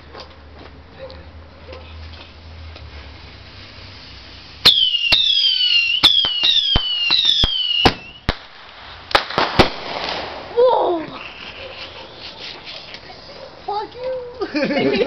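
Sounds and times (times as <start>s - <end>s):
shrill falling firework whistles: 4.6s - 8.4s
firework pops: 4.6s - 13.0s.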